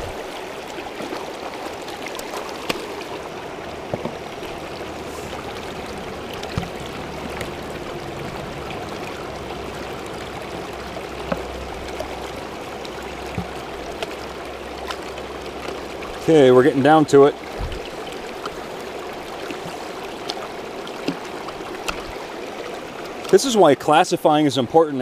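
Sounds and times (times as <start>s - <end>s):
creek water flowing over rocks: 0.0s - 25.0s
small water splashes: 0.0s - 25.0s.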